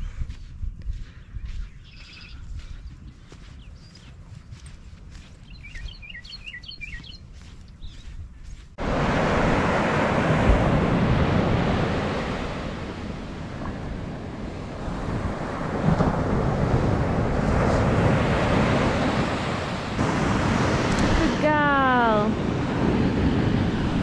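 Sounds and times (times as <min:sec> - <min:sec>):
wind rushing over microphone: 0:00.0 - 0:04.2, 0:05.5 - 0:24.0
surf breaking on beach: 0:08.8 - 0:24.0.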